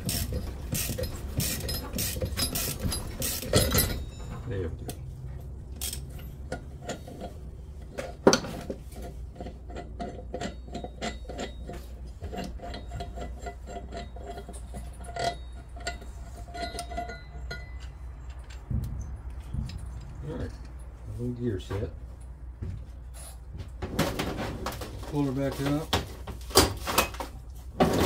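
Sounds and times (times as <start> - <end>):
metal engine parts clicking: 0.0 - 20.9.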